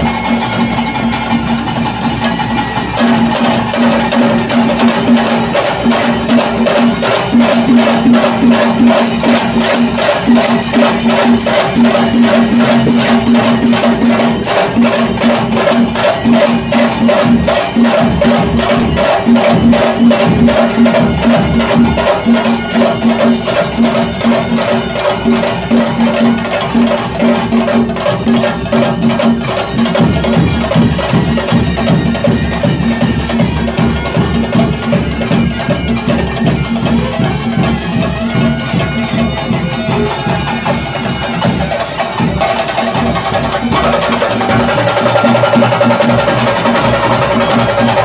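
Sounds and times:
fast dense drumming: 0:00.0 - 0:48.0.

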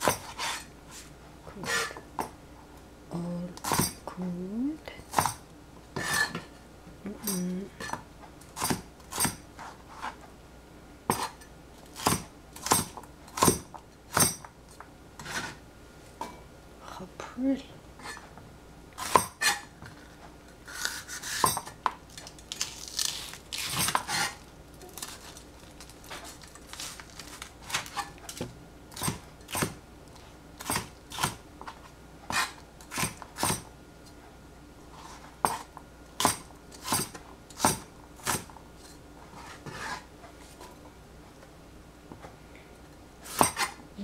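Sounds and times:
cleaver chopping on plastic board: 0:12.0 - 0:14.4.

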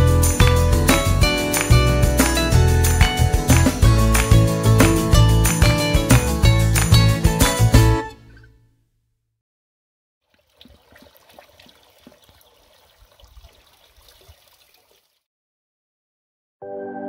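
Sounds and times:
dog lapping water: 0:10.3 - 0:15.0.

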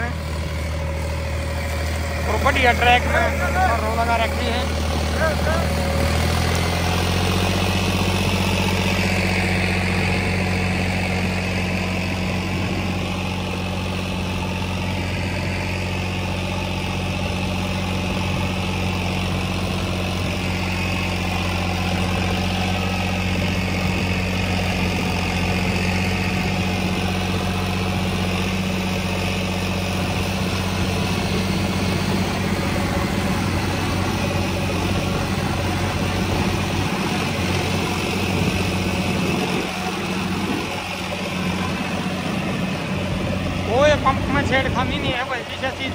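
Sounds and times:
tractor diesel engine running: 0:00.0 - 0:45.9.

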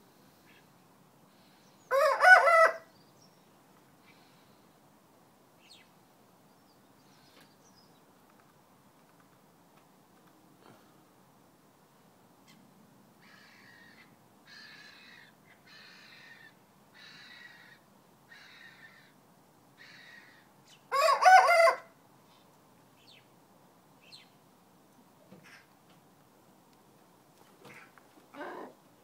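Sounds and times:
rooster crowing: 0:01.9 - 0:02.9, 0:20.9 - 0:21.9.

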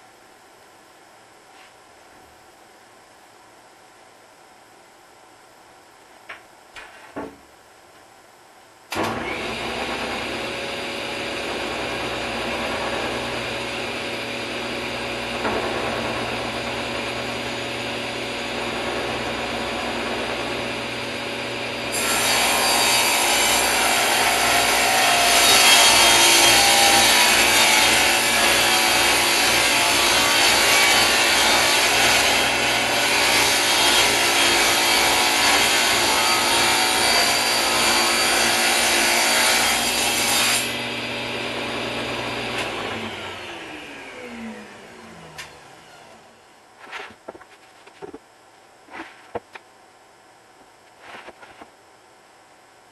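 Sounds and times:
table saw running: 0:08.9 - 0:46.4
saw blade cutting plywood: 0:21.7 - 0:40.8, 0:46.8 - 0:48.2, 0:51.0 - 0:51.7.

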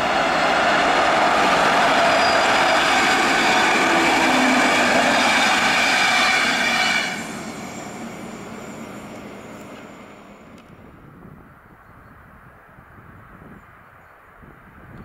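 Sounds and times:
train coaches passing at speed: 0:00.0 - 0:11.0.

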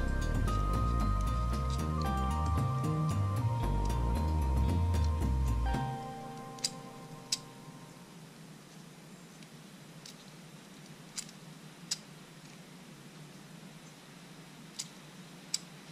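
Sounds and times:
background music: 0:00.0 - 0:08.0
sharp plastic clicks: 0:09.4 - 0:12.6, 0:14.7 - 0:15.9.

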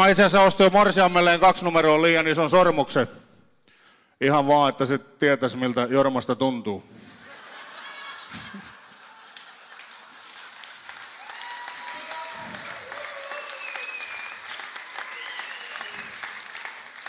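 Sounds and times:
audience laughing: 0:07.0 - 0:10.8
audience applauding: 0:07.8 - 0:17.0.

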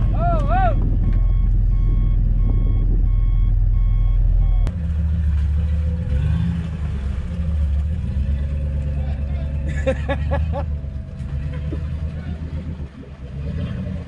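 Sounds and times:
engine rumbling and revving: 0:00.0 - 0:14.0
vehicle warning beeps: 0:00.7 - 0:04.7.

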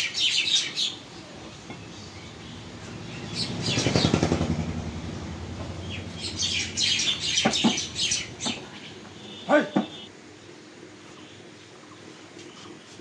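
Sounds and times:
small birds chirping: 0:00.0 - 0:10.1
small motor vehicle passing: 0:01.1 - 0:09.3.

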